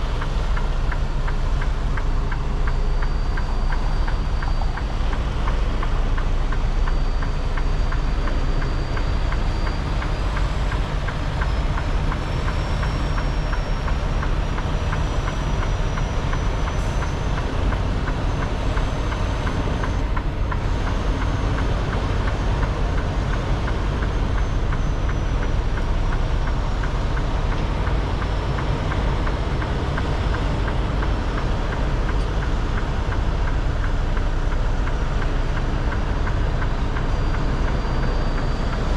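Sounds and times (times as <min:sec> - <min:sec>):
diesel engine drone: 0:00.0 - 0:38.9
road noise: 0:00.0 - 0:38.9
faint high whistle: 0:02.2 - 0:10.6.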